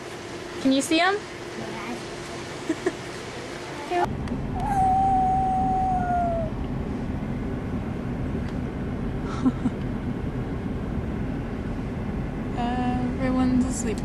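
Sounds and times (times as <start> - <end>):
long high tone: 4.6 - 6.6
road and engine rumble in car: 6.0 - 14.0.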